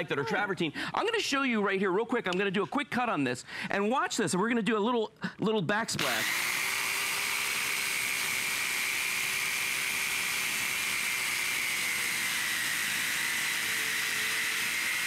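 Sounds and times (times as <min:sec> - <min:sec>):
circular saw cutting stone tile: 0:06.0 - 0:15.0.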